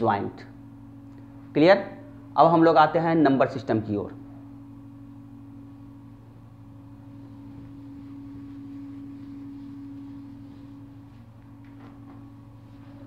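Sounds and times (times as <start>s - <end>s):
steady hum: 0.0s - 13.0s
cloth wiping whiteboard: 7.1s - 13.0s.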